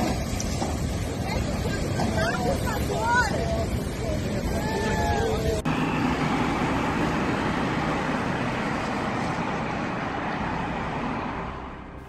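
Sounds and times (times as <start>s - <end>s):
cars passing: 1.6s - 12.0s.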